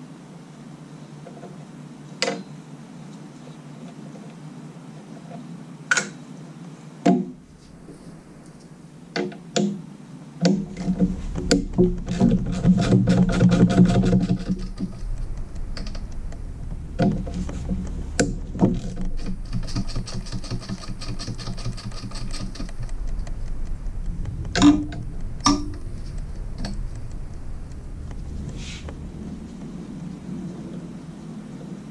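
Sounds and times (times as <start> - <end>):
low steady hum: 0.0 - 31.9
hand ratchet clicking: 18.2 - 27.4.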